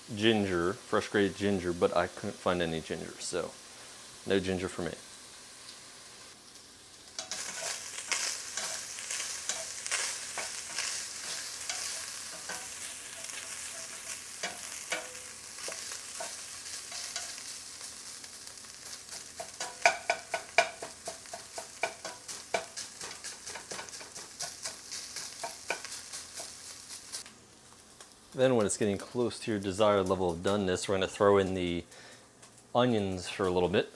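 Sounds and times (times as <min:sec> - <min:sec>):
meat sizzling in a pot: 0:00.0 - 0:33.9
spatula scraping and tapping pot: 0:07.2 - 0:17.4, 0:19.1 - 0:26.6.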